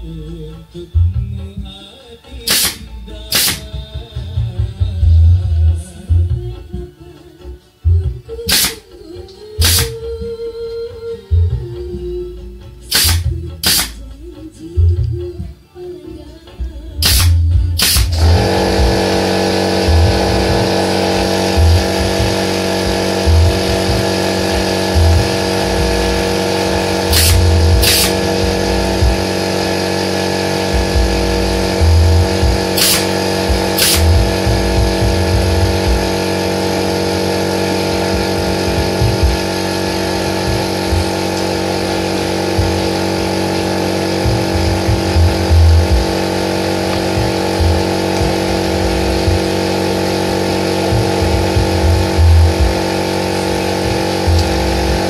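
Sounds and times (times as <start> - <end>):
nail gun firing: 2.4 - 3.9, 8.4 - 9.0, 9.6 - 10.1, 12.8 - 14.1, 17.0 - 36.2
air compressor motor running: 2.4 - 5.3, 7.9 - 10.4, 12.6 - 14.1, 17.0 - 55.0.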